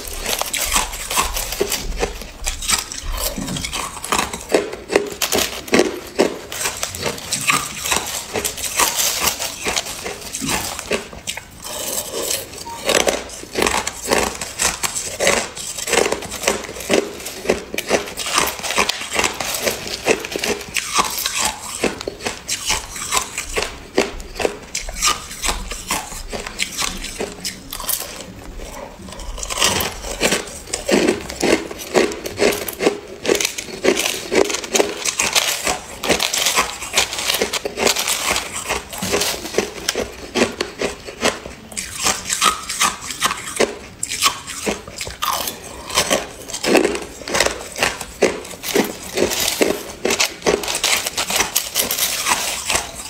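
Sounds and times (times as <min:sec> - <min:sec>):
ice crunching while chewed: 0:00.0 - 0:53.0
plastic spoon scooping ice: 0:00.0 - 0:53.0.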